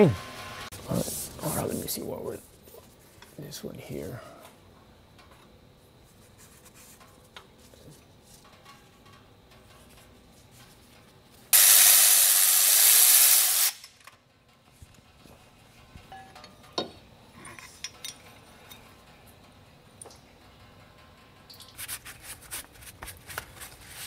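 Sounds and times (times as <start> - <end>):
loud steady hiss: 0.0 - 4.8, 11.4 - 14.0.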